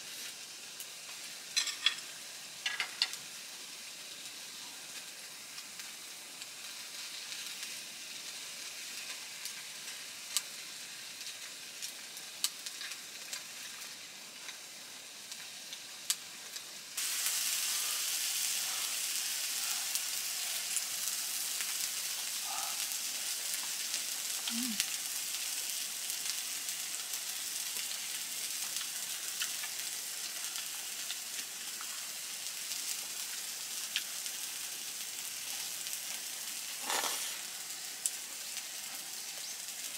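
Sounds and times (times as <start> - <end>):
food sizzling in a frying pan: 0.0 - 39.9
sharp crackling pops: 35.4 - 39.9.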